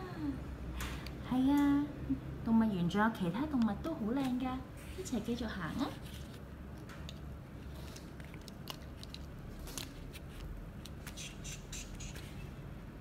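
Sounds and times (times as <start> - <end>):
low steady hum: 0.0 - 13.0
plastic toys clicking and rustling: 7.8 - 11.2.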